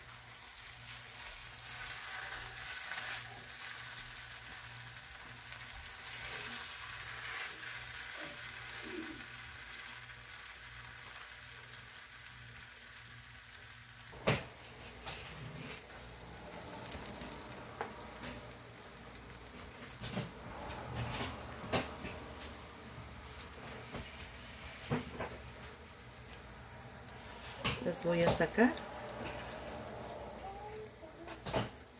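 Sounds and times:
oil sizzling in a pan: 0.0s - 31.9s.

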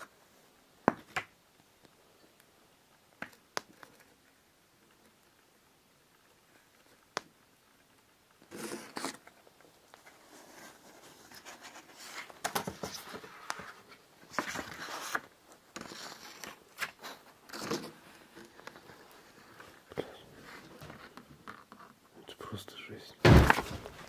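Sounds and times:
rustling shuffling handling noises: 8.5s - 21.9s.

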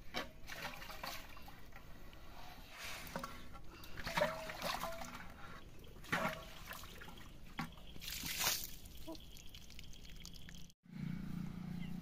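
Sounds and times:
water trickling and sloshing: 0.0s - 10.8s.

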